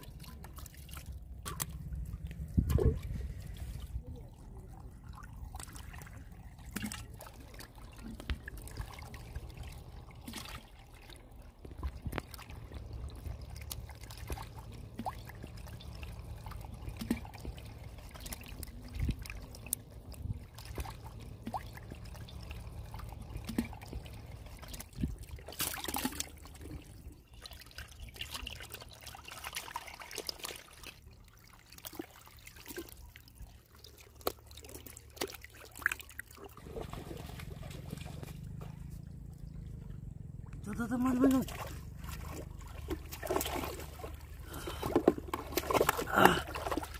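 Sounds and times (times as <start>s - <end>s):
steady low rumble: 0.0s - 25.6s, 36.6s - 46.9s
water trickling in wet sand: 0.0s - 39.4s
water splashing: 0.0s - 46.9s
fish wriggling wet slaps: 44.8s - 46.9s.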